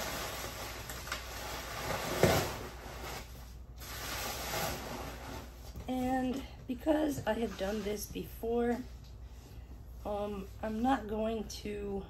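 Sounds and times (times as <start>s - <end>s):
bubble wrap rustling and crinkling: 0.0s - 9.4s.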